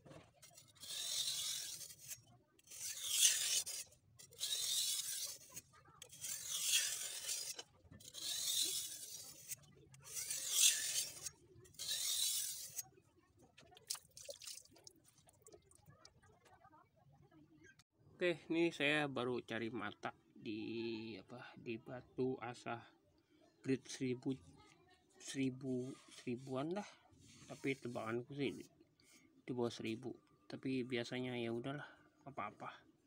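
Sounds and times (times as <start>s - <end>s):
knife scraping on whetstone: 0.3s - 12.9s.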